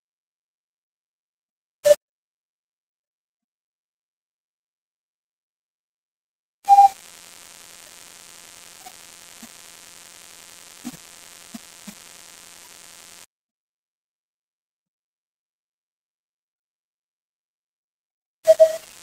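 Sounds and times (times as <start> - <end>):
electrical hum: 6.9 - 13.3, 18.8 - 19.0
steady hiss: 6.9 - 13.3, 18.8 - 19.0.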